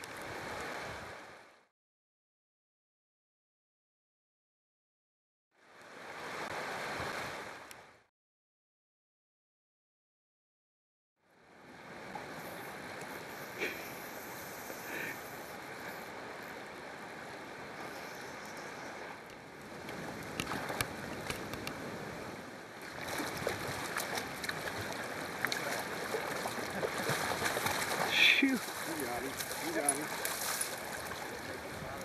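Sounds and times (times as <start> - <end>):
river water rushing over rocks: 19.9 - 31.9.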